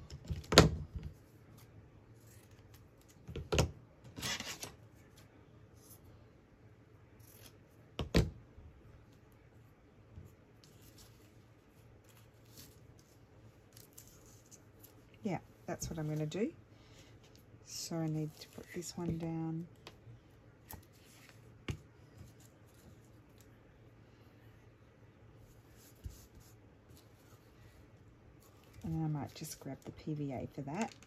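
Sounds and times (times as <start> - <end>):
faint paper scratching: 13.8 - 16.3, 25.4 - 27.8.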